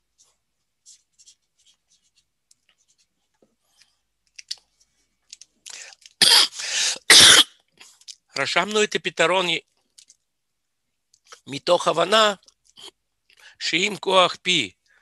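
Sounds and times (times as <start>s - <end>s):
marker scratching on paper: 0.2s - 3.1s.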